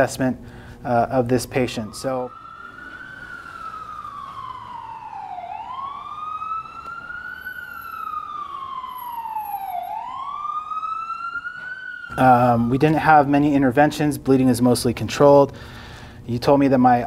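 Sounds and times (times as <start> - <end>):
siren wailing: 0.8 - 13.7.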